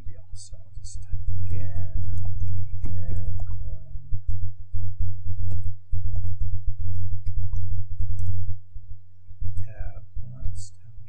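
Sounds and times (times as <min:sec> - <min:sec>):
loud steady low hum: 0:00.0 - 0:11.0.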